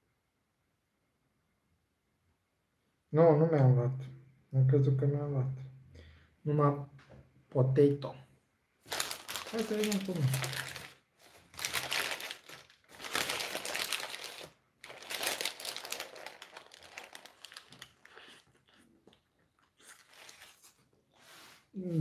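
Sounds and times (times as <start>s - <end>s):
paper wrapper crinkling: 8.8s - 18.8s, 19.6s - 21.0s.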